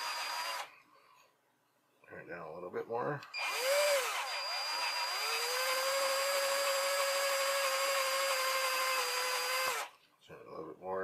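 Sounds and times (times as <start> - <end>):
power drill running: 0.0 - 0.7, 3.3 - 9.9.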